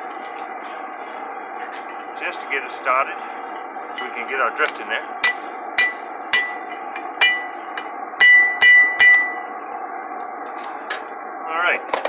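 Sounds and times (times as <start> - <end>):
hammer striking metal: 5.2 - 7.6, 8.2 - 9.4.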